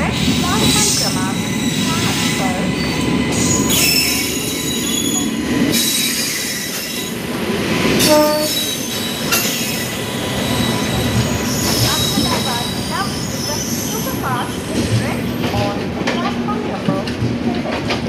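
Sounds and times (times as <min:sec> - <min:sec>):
train wheel rumble: 0:00.0 - 0:18.0
high wheel squeals: 0:00.6 - 0:07.2, 0:08.0 - 0:14.8.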